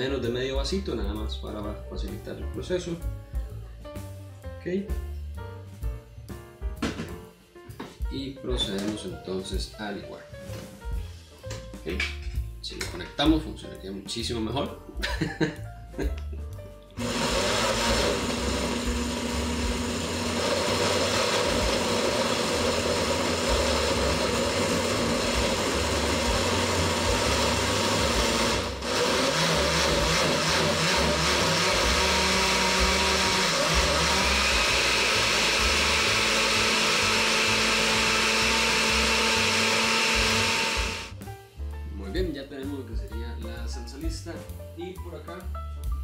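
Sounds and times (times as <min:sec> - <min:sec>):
blender running: 0:17.0 - 0:41.2.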